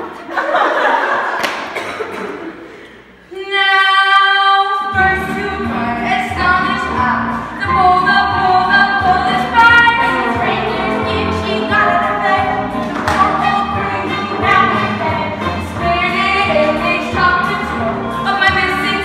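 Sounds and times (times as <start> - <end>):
woman singing: 3.3 - 19.0
musical accompaniment with beat: 5.0 - 19.0.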